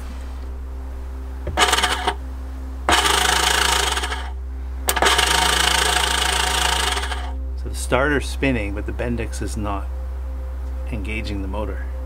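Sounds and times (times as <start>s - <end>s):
electric starter motor whirring: 1.5s - 2.2s, 2.9s - 7.4s.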